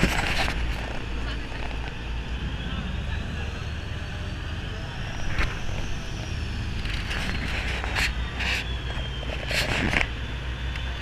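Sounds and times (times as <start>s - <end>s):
wind on microphone: 0.0s - 1.8s
boat engine droning: 0.0s - 11.0s.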